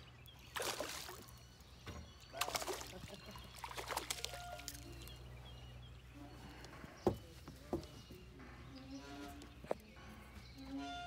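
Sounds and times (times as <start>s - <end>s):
fish splashing at water surface: 0.5s - 1.2s, 2.4s - 4.9s.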